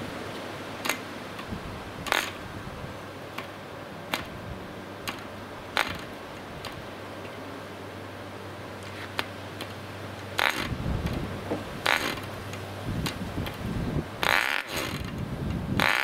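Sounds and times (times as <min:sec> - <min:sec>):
propeller flick snaps: 0:00.8 - 0:02.4, 0:05.0 - 0:07.4.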